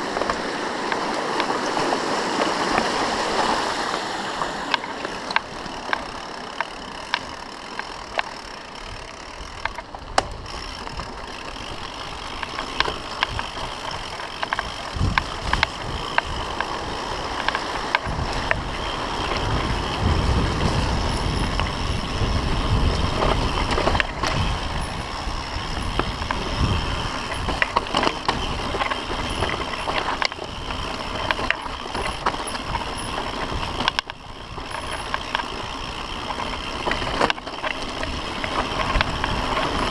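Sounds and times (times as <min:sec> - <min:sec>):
bike rattling over rough ground: 0:00.0 - 0:39.9
bike tyres on dirt and stone: 0:00.0 - 0:39.9
wind buffeting microphone: 0:08.9 - 0:39.9.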